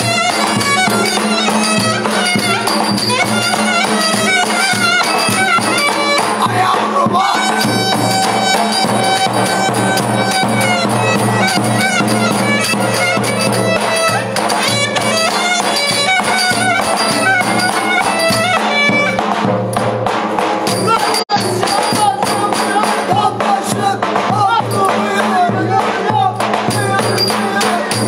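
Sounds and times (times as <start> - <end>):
clarinet playing fast melody: 0.0 - 19.2
drum beat: 0.0 - 28.0.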